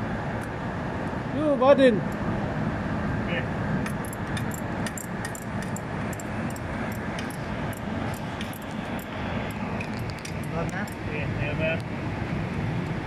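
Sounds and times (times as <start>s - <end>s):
metallic clinks of hand tools: 3.9s - 7.8s.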